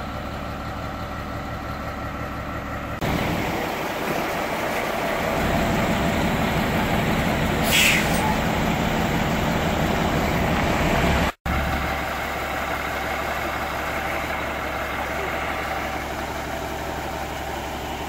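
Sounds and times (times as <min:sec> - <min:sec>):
diesel truck engine idling: 0:00.0 - 0:18.0
air hiss: 0:07.6 - 0:08.3.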